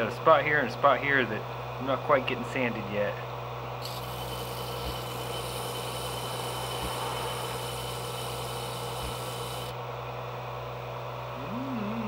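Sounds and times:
blade grinding against sanding disc: 0:03.8 - 0:09.7
disc sander motor hum: 0:03.8 - 0:10.1.

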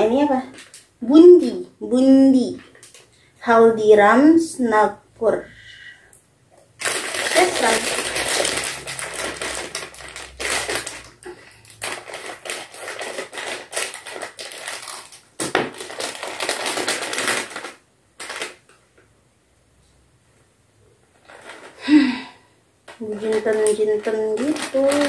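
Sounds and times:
plastic packet crinkling: 0:00.0 - 0:00.9, 0:02.4 - 0:03.1, 0:06.7 - 0:18.8, 0:21.1 - 0:22.1, 0:22.9 - 0:25.0.

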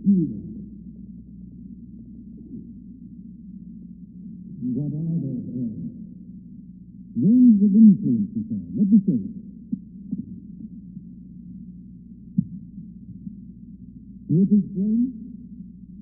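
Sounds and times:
muffled voices talking: 0:04.6 - 0:06.0.

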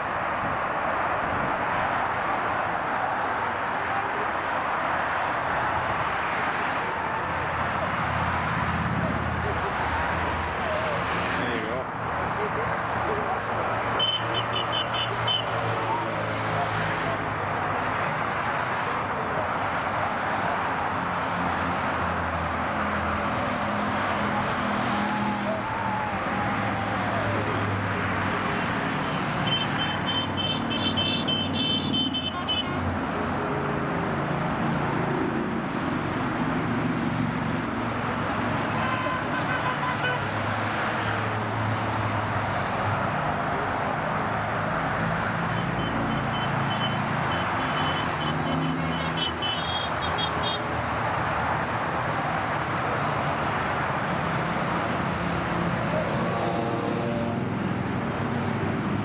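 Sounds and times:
road traffic noise: 0:00.0 - 0:59.0
horn tooting: 0:14.0 - 0:15.6, 0:28.8 - 0:32.9, 0:38.7 - 0:40.4, 0:45.6 - 0:50.7.

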